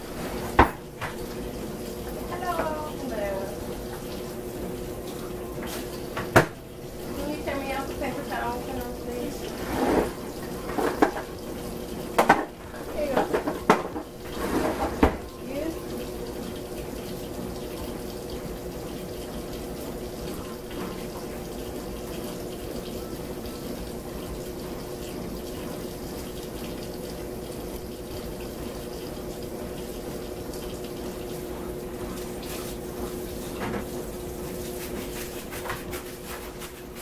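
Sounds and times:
faucet running into metal sink: 0:00.0 - 0:37.0
knocks of items at sink: 0:06.2 - 0:06.6, 0:12.2 - 0:14.1, 0:33.6 - 0:33.9.

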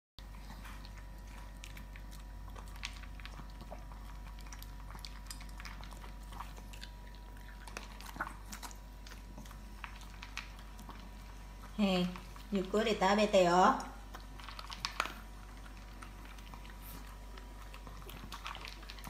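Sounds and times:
dogs crunching dry kibble: 0:00.3 - 0:19.0.

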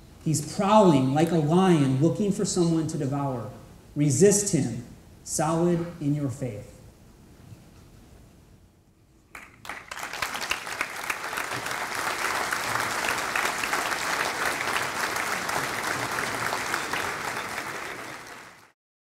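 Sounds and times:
audience applauding: 0:09.3 - 0:18.8.

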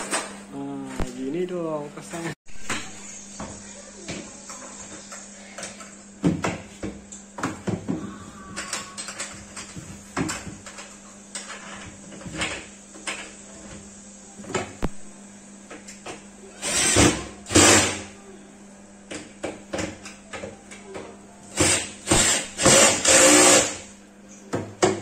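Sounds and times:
cordless drill driving screws: 0:21.6 - 0:23.8.

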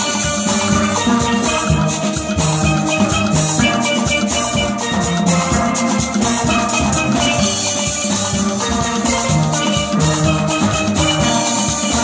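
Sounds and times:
drum kit with cymbals: 0:00.0 - 0:12.0
steel pans playing: 0:00.0 - 0:12.0.

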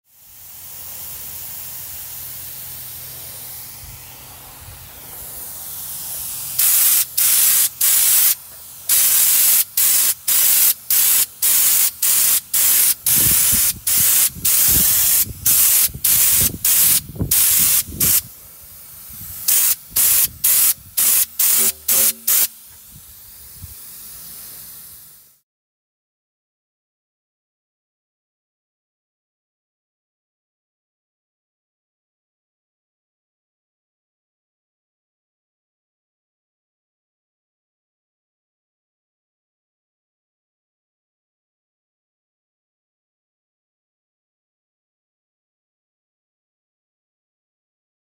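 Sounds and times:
spray gun bursts: 0:00.1 - 0:25.4
spray gun hissing: 0:00.1 - 0:25.4.

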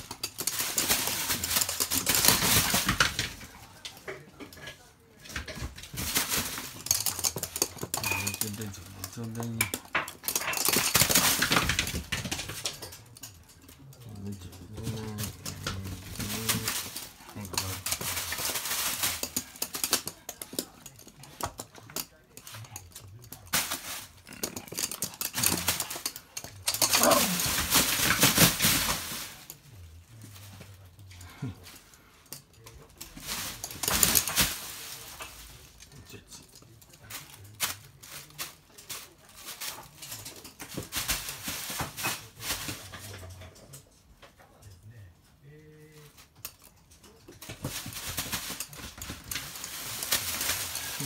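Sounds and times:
plastic packaging crinkling: 0:00.0 - 0:03.3, 0:14.2 - 0:21.1, 0:47.5 - 0:51.0.

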